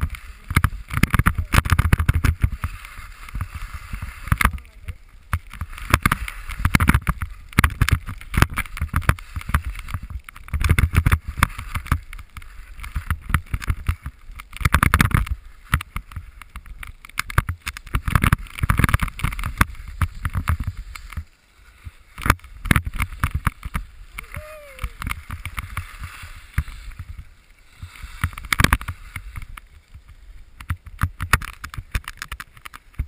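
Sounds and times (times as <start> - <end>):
sharp clicks and knocks: 0.0 - 2.6, 4.3 - 21.2, 22.2 - 24.4, 28.2 - 30.0, 30.6 - 33.0
skis scraping over snow: 0.0 - 33.0.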